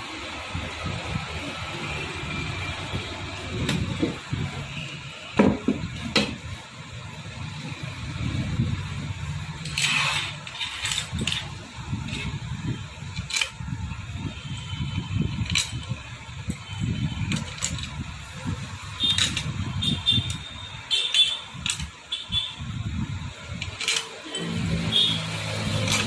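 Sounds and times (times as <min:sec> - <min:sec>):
metallic clicks and clinks: 0:09.6 - 0:12.4, 0:13.1 - 0:13.6, 0:15.2 - 0:16.6, 0:17.2 - 0:18.1, 0:18.9 - 0:22.0, 0:23.6 - 0:24.4, 0:25.7 - 0:26.0.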